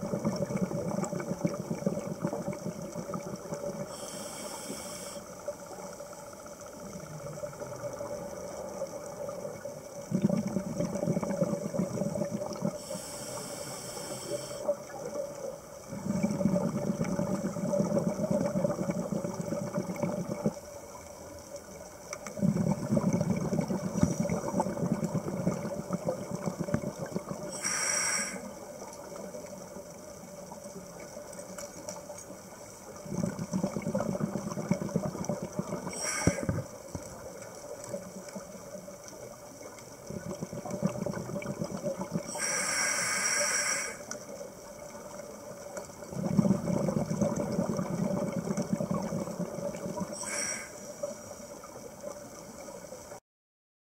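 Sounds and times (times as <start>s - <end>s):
low rumbling exhaled bubbles: 0.0s - 4.3s, 6.6s - 13.7s, 14.3s - 21.4s, 22.2s - 27.6s, 32.9s - 42.6s, 43.9s - 53.2s
faint steady hum: 0.0s - 53.2s
regulator inhalation hisses: 3.9s - 5.4s, 12.8s - 14.7s, 27.5s - 28.6s, 35.9s - 36.7s, 42.3s - 44.1s, 50.1s - 51.2s.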